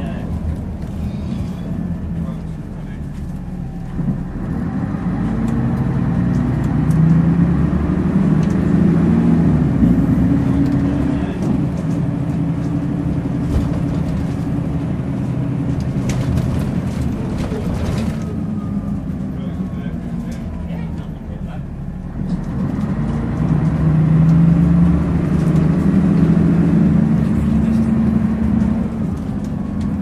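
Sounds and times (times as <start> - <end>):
bus diesel engine: 0.0 - 30.0
bus body rattles: 8.0 - 30.0.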